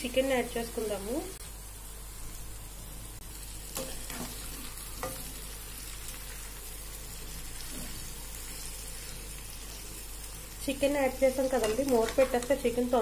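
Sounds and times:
chicken sizzling in hot oil: 0:00.0 - 0:13.0
steel spoon stirring in pan: 0:03.7 - 0:09.8.

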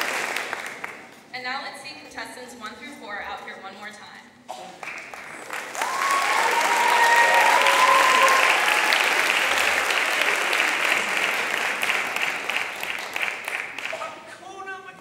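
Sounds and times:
audience applauding and cheering: 0:00.0 - 0:01.1, 0:04.8 - 0:14.2
high shouts: 0:05.7 - 0:09.7.

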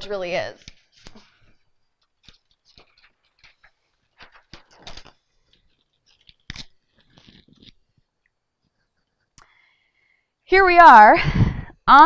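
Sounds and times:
paper sheets crinkling and rustling: 0:00.6 - 0:08.1.

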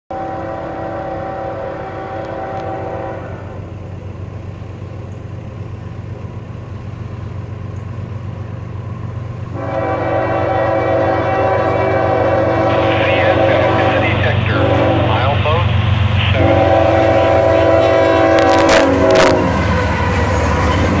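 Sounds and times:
locomotive horn blasts: 0:00.1 - 0:03.7, 0:09.5 - 0:19.8
train low rumble: 0:00.1 - 0:21.0.

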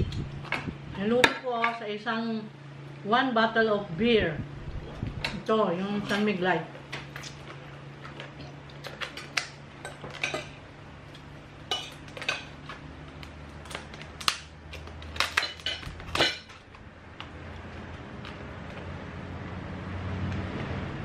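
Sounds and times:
low steady hum: 0:00.0 - 0:21.0
utensils clinking on plates: 0:09.0 - 0:10.6, 0:11.6 - 0:12.8, 0:15.2 - 0:16.6.

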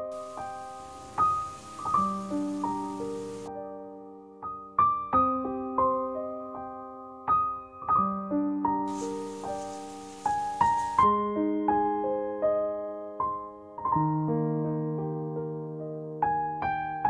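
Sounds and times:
faint hiss: 0:00.0 - 0:03.5, 0:08.9 - 0:11.0
piano music: 0:00.0 - 0:17.0.

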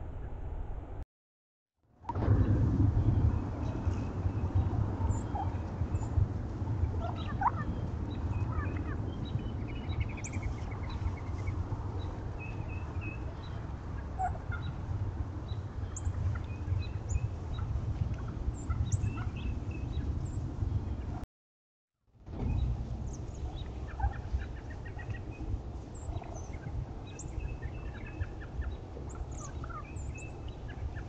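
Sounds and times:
steady low rumble: 0:01.9 - 0:21.2, 0:22.1 - 0:31.0
turkeys calling: 0:05.0 - 0:06.1, 0:06.9 - 0:14.9, 0:16.0 - 0:19.9, 0:23.1 - 0:25.4, 0:26.0 - 0:31.0.

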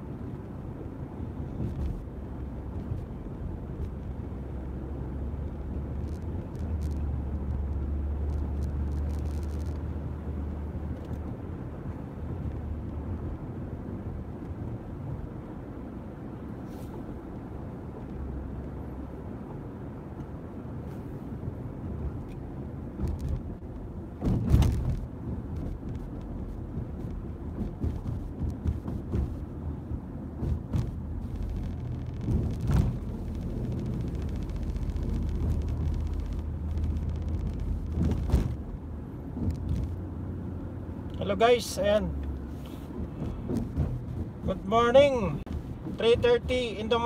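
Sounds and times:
car engine drone: 0:00.0 - 0:47.0
road noise in car cabin: 0:00.0 - 0:47.0
knocks and bumps: 0:24.2 - 0:40.0, 0:42.9 - 0:47.0.

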